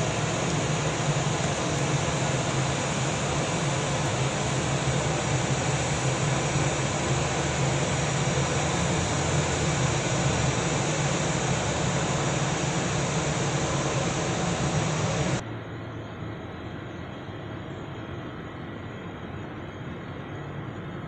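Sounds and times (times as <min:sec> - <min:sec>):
jet engines rumbling: 0:00.0 - 0:15.4
quiet engine hum: 0:00.0 - 0:21.0.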